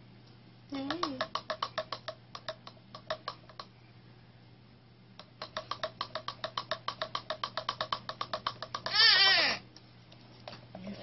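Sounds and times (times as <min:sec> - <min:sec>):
rapid steady clicking: 0:00.8 - 0:03.7, 0:05.2 - 0:08.9.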